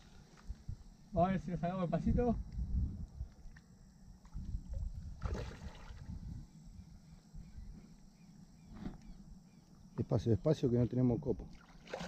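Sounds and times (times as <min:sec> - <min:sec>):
wind rumble on microphone: 0:00.0 - 0:03.6, 0:04.2 - 0:07.8.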